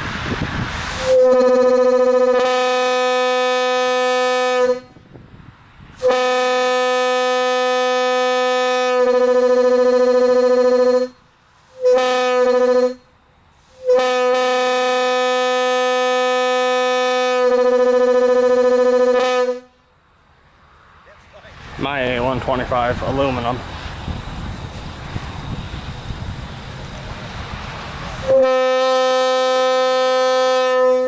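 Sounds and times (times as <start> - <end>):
air horn blasts: 0.8 - 5.0, 6.0 - 13.1, 13.7 - 19.8, 28.2 - 31.0.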